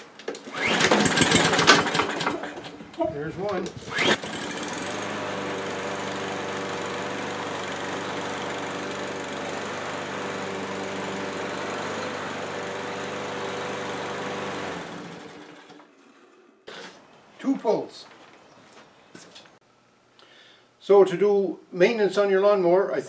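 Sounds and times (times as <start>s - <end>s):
lawn mower engine running: 0.0s - 17.0s.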